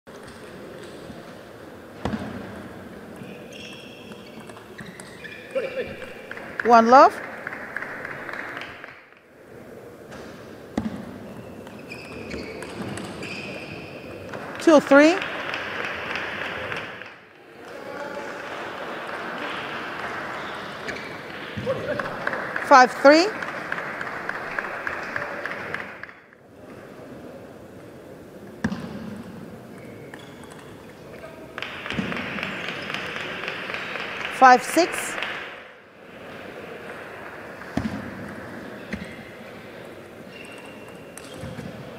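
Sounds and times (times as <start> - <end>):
arena ambience: 0.1 - 41.9
shoes squeaking on floor: 3.2 - 6.2, 10.8 - 14.2, 20.4 - 21.8, 29.7 - 31.2, 38.8 - 39.4, 40.2 - 41.9
light applause: 15.2 - 26.3, 31.1 - 35.6.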